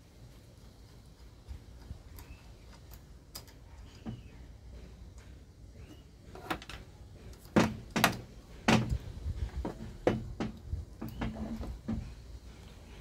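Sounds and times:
loud knock on metal bench: 7.6 - 9.1.

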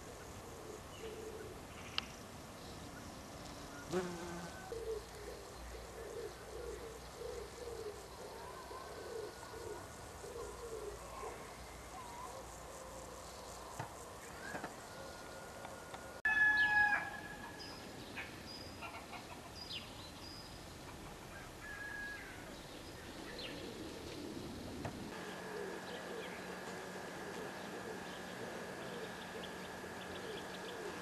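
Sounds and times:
birds calling and whistling: 25.2 - 31.0.

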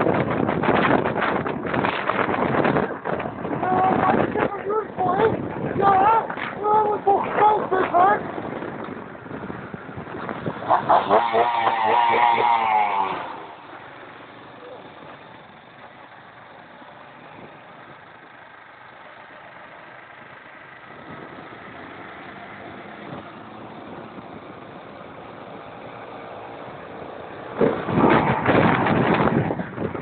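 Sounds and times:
sudden loud rough noise: 27.5 - 30.0.

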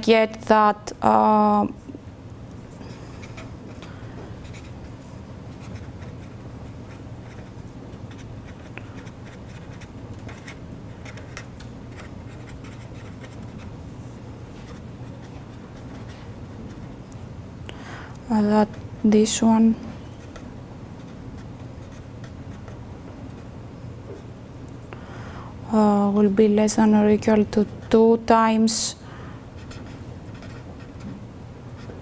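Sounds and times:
steady low hum: 0.0 - 32.0
pen scratching on paper: 4.4 - 4.8, 5.5 - 13.7, 29.6 - 31.0.

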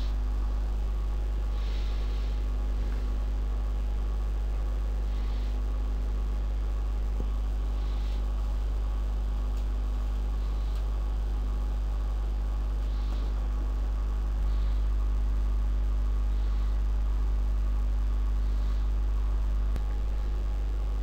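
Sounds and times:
low electrical mains hum: 0.0 - 21.0.

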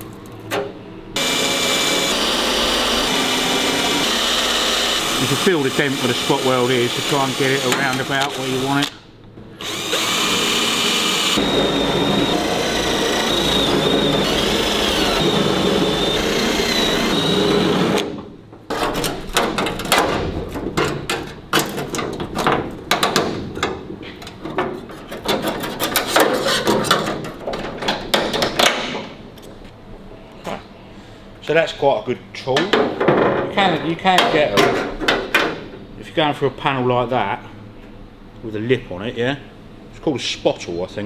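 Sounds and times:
drill cutting metal: 1.2 - 8.9, 9.6 - 18.0.

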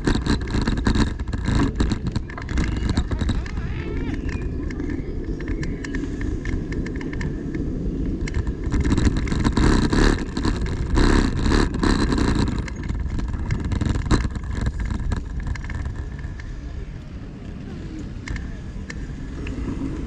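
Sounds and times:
city street traffic: 0.0 - 20.0.

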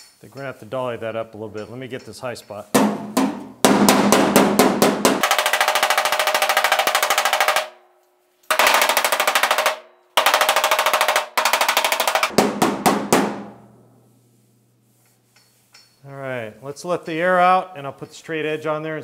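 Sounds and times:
slapper tool beating sheet metal: 2.8 - 7.8, 8.5 - 13.8.

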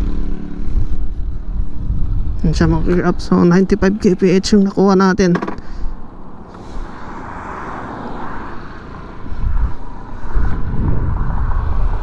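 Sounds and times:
wind rumble on microphone: 0.0 - 4.7, 5.8 - 12.0
scooter engine running: 0.0 - 6.4.

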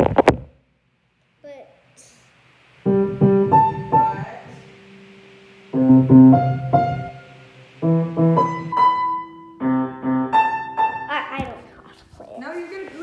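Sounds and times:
piano chords: 2.8 - 11.4.

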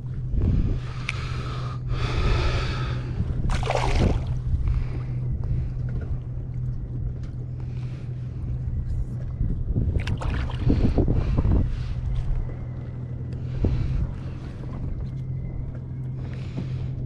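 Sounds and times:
water lapping at hull: 0.0 - 17.0
wind rumbling on microphone: 0.0 - 17.0.

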